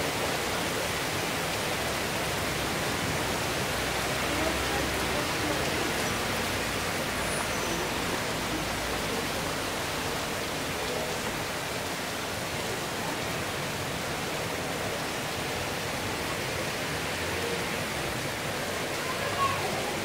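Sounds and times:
heavy rain on rooftops: 0.0 - 20.0.

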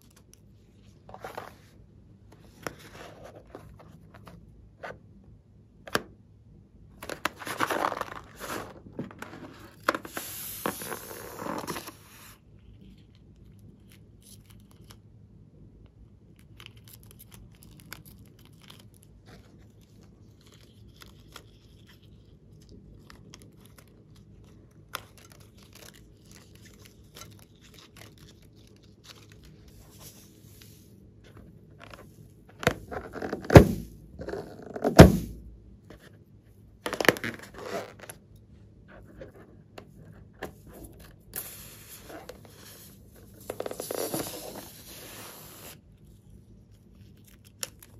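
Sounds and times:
balloons rustling and crinkling: 40.8 - 45.8.

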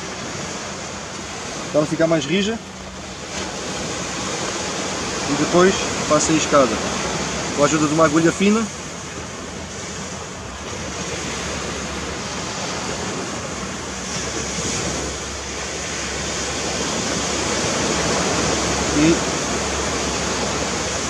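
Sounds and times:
surf breaking on a beach: 0.0 - 21.0.

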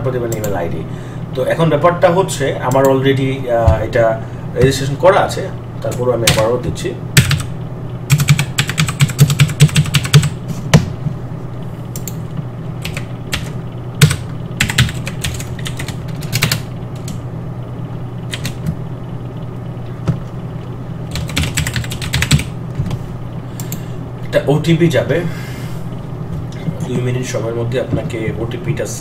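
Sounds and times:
typing on keyboard: 8.1 - 10.3, 12.8 - 17.2, 18.3 - 18.6, 21.1 - 22.5
low hum: 10.2 - 29.0.

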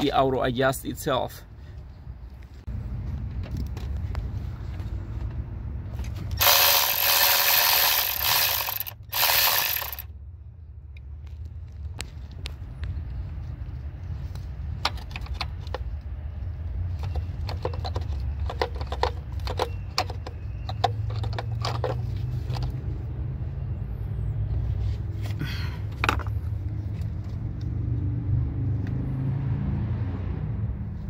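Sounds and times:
light metallic clicks and rattles: 16.9 - 22.8.

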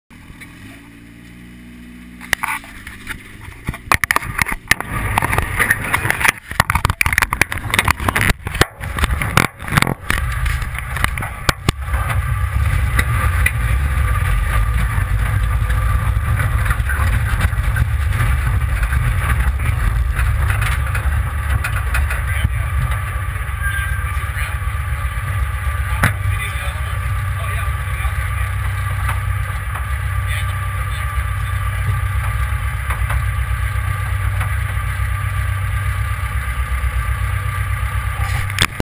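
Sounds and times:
buggy engine rumbling: 0.1 - 38.8
sharp knocks and clatter: 2.2 - 23.4, 25.2 - 30.2, 31.1 - 35.1.

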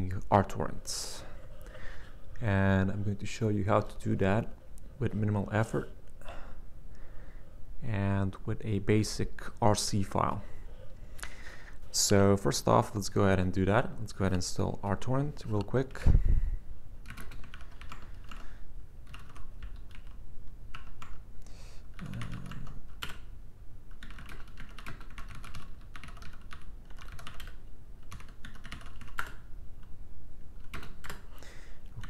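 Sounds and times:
typing on computer keyboard: 17.0 - 21.2, 22.0 - 23.3, 23.9 - 29.4, 30.6 - 31.3.

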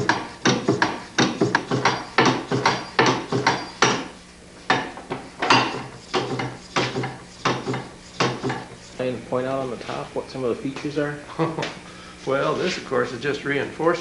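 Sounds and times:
engine mechanism clacking: 0.0 - 3.9
steady low hum: 0.0 - 14.0.

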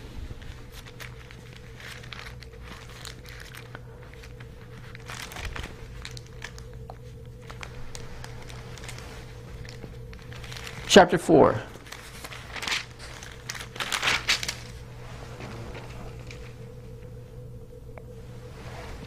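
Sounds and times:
faint steady hum: 0.0 - 19.0
pages rustling: 0.3 - 17.2.

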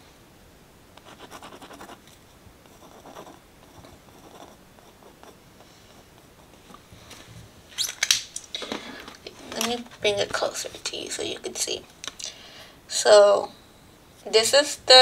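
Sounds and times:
gel pen scratching on paper: 1.0 - 2.0, 2.6 - 6.8.

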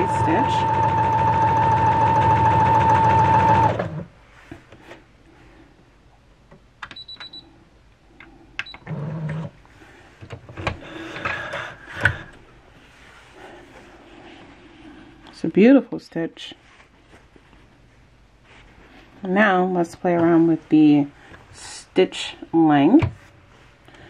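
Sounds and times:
sewing machine motor whine: 0.0 - 4.1.

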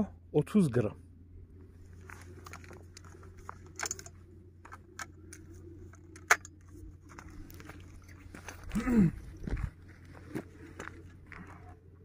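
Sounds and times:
shotgun handling clicks and rustling: 1.8 - 8.8.

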